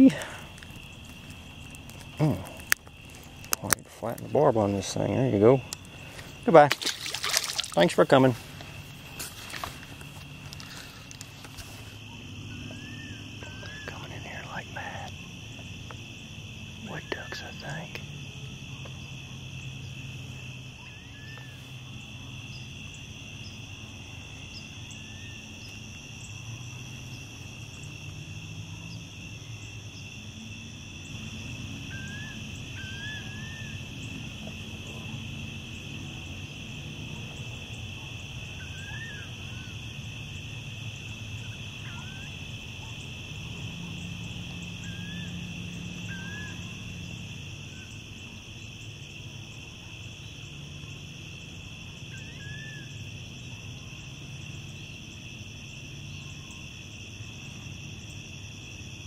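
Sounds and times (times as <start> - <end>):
insects trilling: 0.0 - 59.0
short bird calls: 31.9 - 33.8, 38.6 - 39.8.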